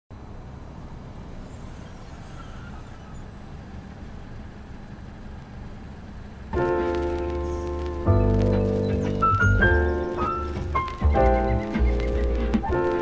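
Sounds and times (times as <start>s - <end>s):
distant city traffic rumble: 0.1s - 13.0s.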